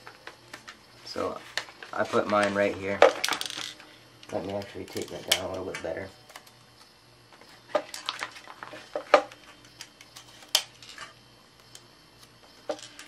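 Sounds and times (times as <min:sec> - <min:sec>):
paper and tape crinkling: 0:00.1 - 0:03.6, 0:07.4 - 0:11.1.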